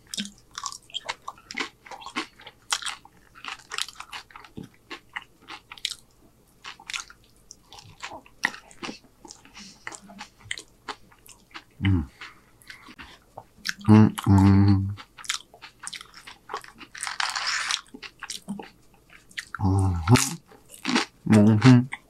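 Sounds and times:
wet chewing: 0:00.0 - 0:14.3, 0:14.9 - 0:21.2
chips crunching: 0:15.2 - 0:18.7.

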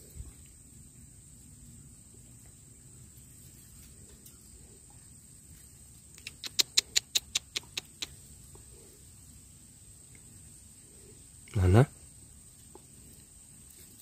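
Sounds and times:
animal chirping: 0:06.2 - 0:08.2.

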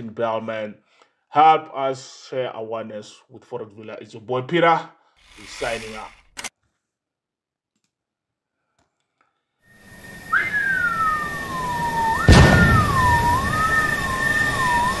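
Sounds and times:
wavering falling whistle tone: 0:09.7 - 0:15.0
rising hiss: 0:09.8 - 0:15.0
steady high tone: 0:09.8 - 0:15.0
sharp hit and deep boom: 0:12.2 - 0:13.4.

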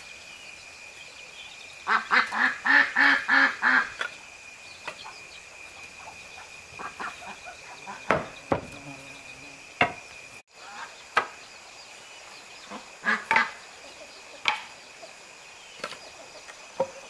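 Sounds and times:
high insect drone: 0:00.0 - 0:17.0
wood chopping on stump: 0:08.0 - 0:08.8, 0:09.8 - 0:10.0, 0:14.4 - 0:14.7.

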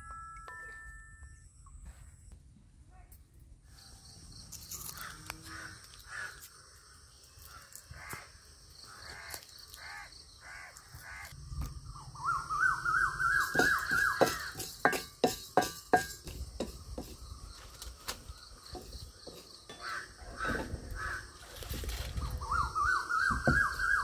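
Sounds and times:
crows cawing: 0:04.9 - 0:06.8, 0:07.4 - 0:11.4, 0:19.7 - 0:21.4.

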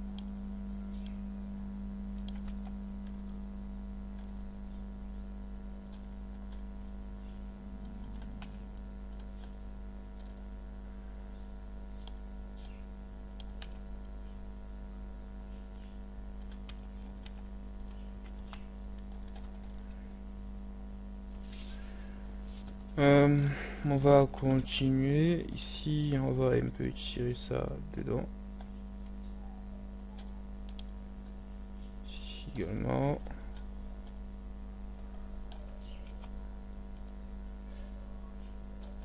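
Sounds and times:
electrical mains hum: 0:00.0 - 0:39.0
keyboard and mouse clicks: 0:02.2 - 0:03.2, 0:07.8 - 0:09.6, 0:16.4 - 0:19.8, 0:30.1 - 0:31.4.

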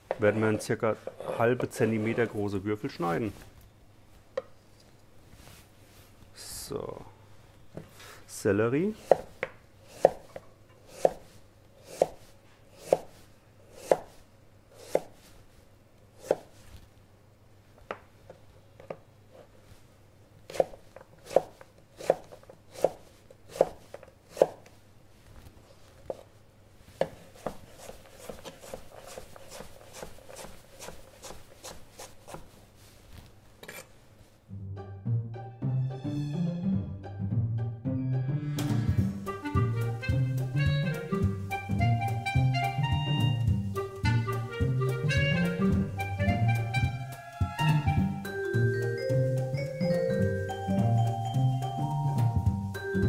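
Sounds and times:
knife chopping on cutting board: 0:09.0 - 0:14.2, 0:14.8 - 0:15.1, 0:16.2 - 0:16.5, 0:20.5 - 0:24.6.

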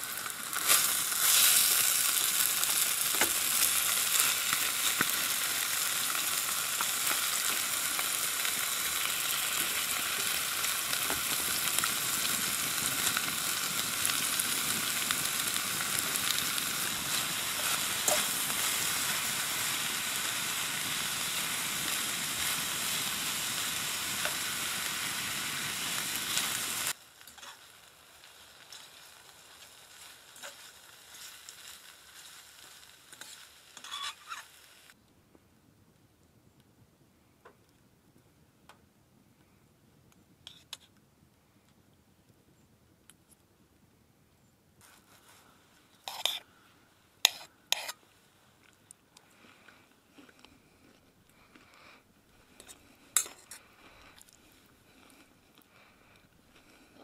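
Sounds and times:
food sizzling in a pan: 0:00.0 - 0:35.0, 0:46.1 - 0:46.4, 0:47.2 - 0:48.0, 0:52.5 - 0:54.2.

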